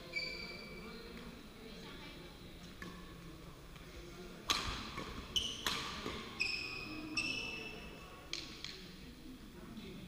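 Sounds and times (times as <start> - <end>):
shoes squeaking on floor: 0.0 - 1.0, 5.1 - 7.9
racket striking shuttlecock: 4.5 - 6.3.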